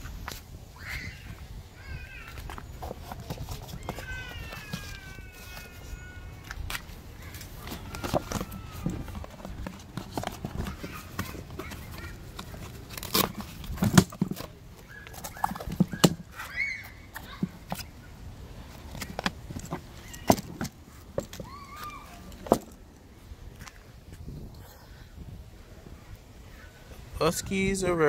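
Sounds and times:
tool bag knocks and clicks: 0:13.0 - 0:14.5.

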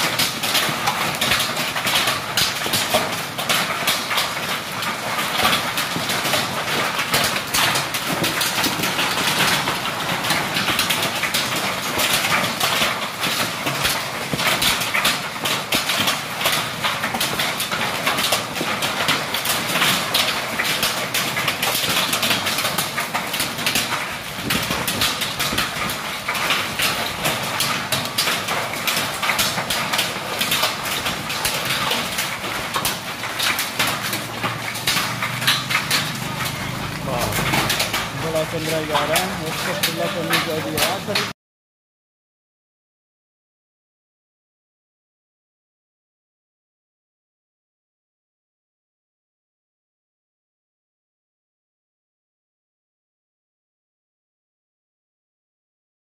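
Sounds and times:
hail and rain pelting: 0:00.0 - 0:41.4.

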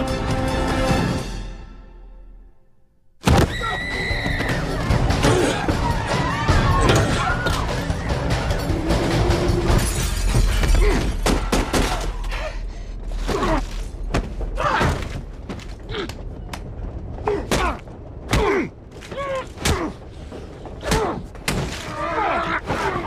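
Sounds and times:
breaking glass: 0:09.7 - 0:11.2
deep rumble: 0:12.3 - 0:21.5.

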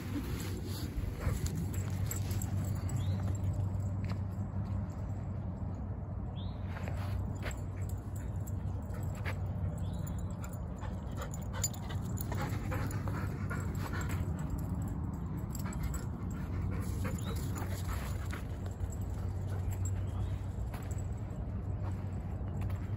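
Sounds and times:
dog panting: 0:00.5 - 0:03.3, 0:07.9 - 0:20.4.

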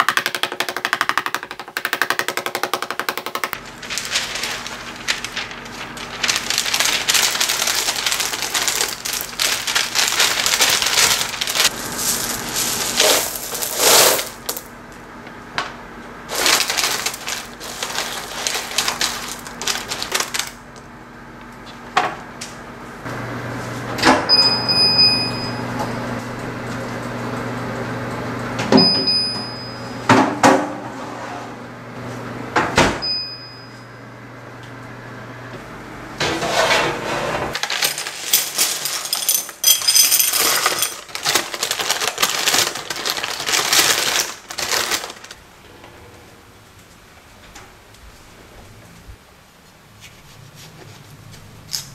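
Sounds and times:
oven hum: 0:03.5 - 0:39.6, 0:40.3 - 0:51.9
paper rustling: 0:03.6 - 0:14.5, 0:16.3 - 0:20.6, 0:37.5 - 0:39.4, 0:40.4 - 0:45.4
pie weights rattling and clinking: 0:06.3 - 0:14.6, 0:37.6 - 0:45.2
short high beeps: 0:24.3 - 0:25.7.

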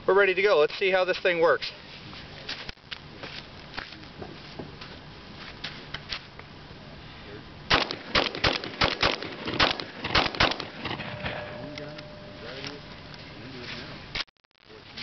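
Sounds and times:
rapid shotgun shots: 0:07.7 - 0:11.4.

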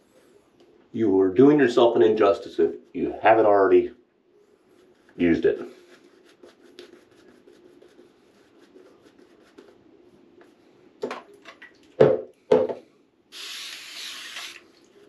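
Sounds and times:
shaving brush scrubbing lather: 0:04.8 - 0:09.8
spray bottle mister hissing: 0:13.3 - 0:14.7.

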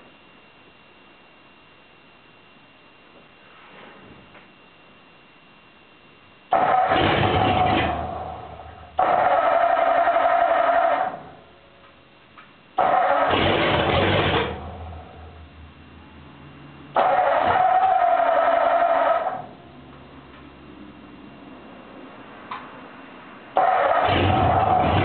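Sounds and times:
starter motor cranking engine: 0:06.5 - 0:08.3, 0:09.0 - 0:11.2, 0:12.8 - 0:14.7, 0:16.9 - 0:19.4, 0:23.6 - 0:25.0.

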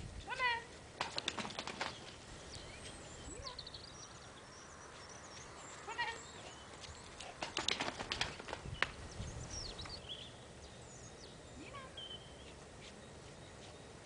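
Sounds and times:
faint bird chirps: 0:01.8 - 0:07.3, 0:08.7 - 0:14.0.

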